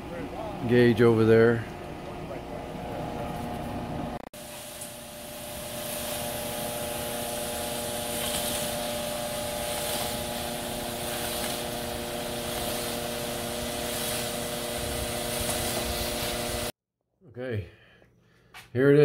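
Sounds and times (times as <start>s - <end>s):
concrete mixer truck humming: 0.0s - 16.7s
hiss of sliding concrete: 4.4s - 16.7s.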